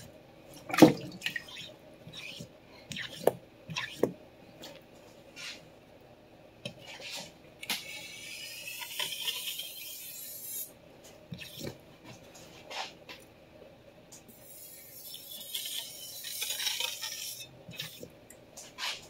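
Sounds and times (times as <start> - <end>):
knife scraping on sharpening stone: 14.4 - 18.0.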